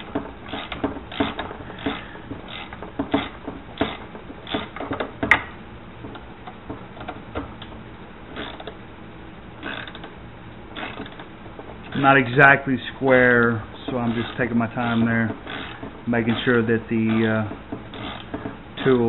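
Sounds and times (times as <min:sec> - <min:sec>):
ratchet clicking: 0:00.0 - 0:05.5, 0:08.4 - 0:08.8, 0:09.6 - 0:12.3, 0:13.8 - 0:19.0.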